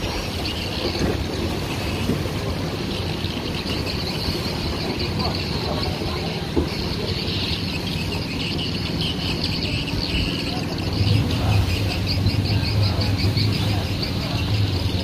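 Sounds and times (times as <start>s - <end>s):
low engine hum: 0.0s - 15.0s
small birds chirping: 1.7s - 15.0s.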